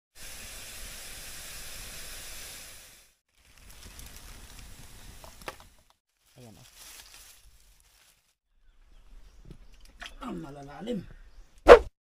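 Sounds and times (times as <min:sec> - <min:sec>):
hiss of steaming bamboo: 0:00.1 - 0:05.4
fire crackling: 0:00.2 - 0:08.4
sharp pop: 0:11.6 - 0:11.9.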